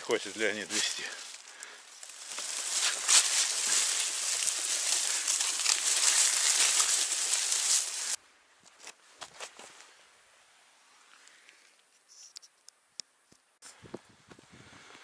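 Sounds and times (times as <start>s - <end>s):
bicycle tyres through leaves: 0.0s - 8.2s
dry leaves crunching underfoot: 0.0s - 8.2s.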